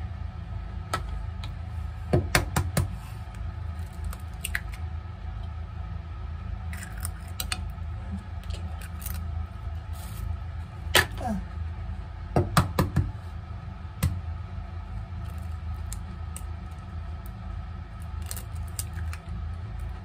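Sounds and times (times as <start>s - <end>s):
steady low hum: 0.0s - 20.0s
eggshell crackling: 3.4s - 4.9s, 6.6s - 10.3s, 14.8s - 20.0s.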